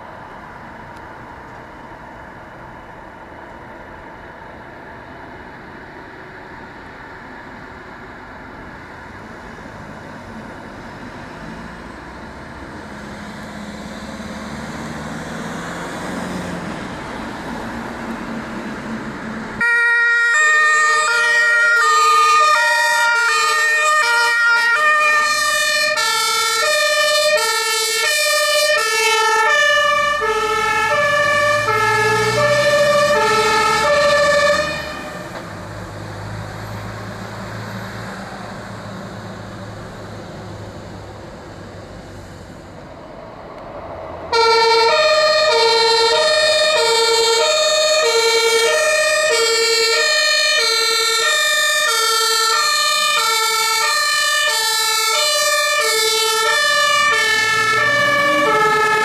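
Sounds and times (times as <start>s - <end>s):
truck diesel engine pulling away: 5.5s - 19.6s, 20.4s - 59.0s
fire engine two-tone siren: 19.6s - 39.4s, 44.3s - 59.0s.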